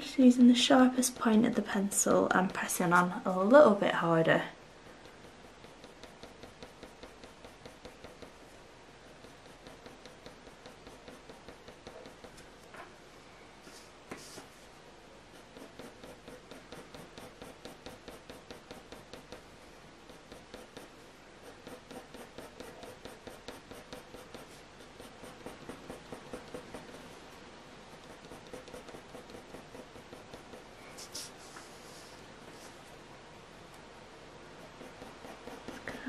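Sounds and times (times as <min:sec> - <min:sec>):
pencil scratching on paper: 0:05.0 - 0:12.4, 0:15.3 - 0:32.8, 0:34.6 - 0:36.0.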